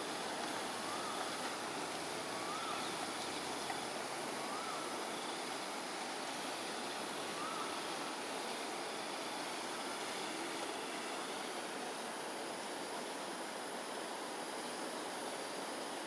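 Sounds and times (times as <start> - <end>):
faint whistled call: 0.0 - 11.3
water rushing in canal: 0.0 - 16.0.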